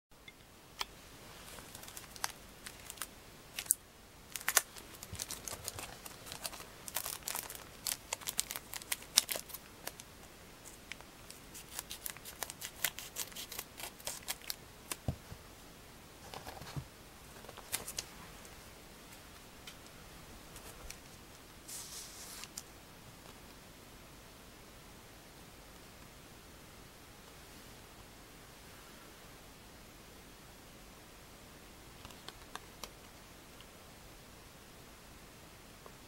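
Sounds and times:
wrapper crinkling: 1.5s - 15.0s
scissors snipping packet: 4.4s - 10.1s, 11.5s - 15.0s.

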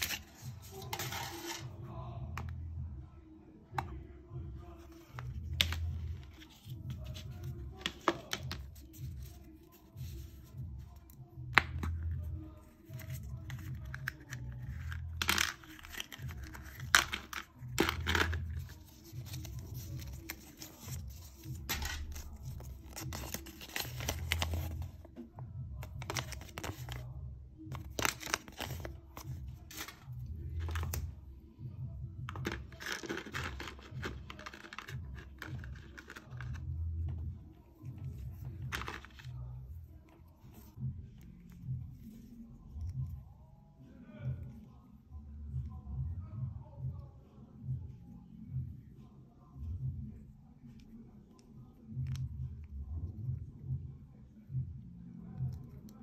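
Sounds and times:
background music with low pulse: 0.0s - 56.0s
paper crinkling and tearing: 12.9s - 24.9s, 27.8s - 31.0s, 32.5s - 36.6s.

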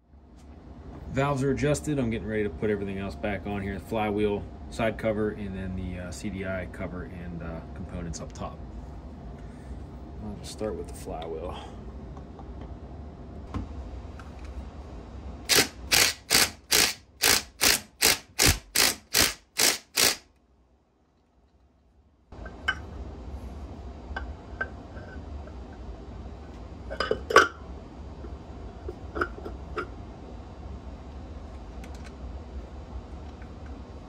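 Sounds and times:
impact wrench bursts: 15.5s - 20.3s.

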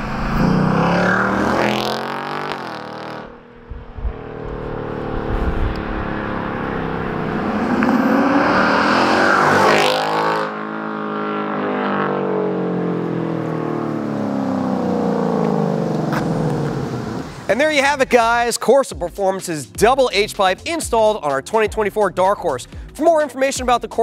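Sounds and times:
car accelerating past: 0.0s - 17.5s.

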